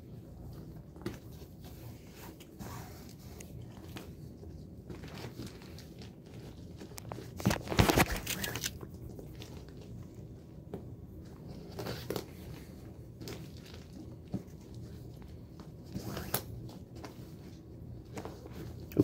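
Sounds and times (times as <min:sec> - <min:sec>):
plastic tarp crinkling: 0:04.9 - 0:08.8.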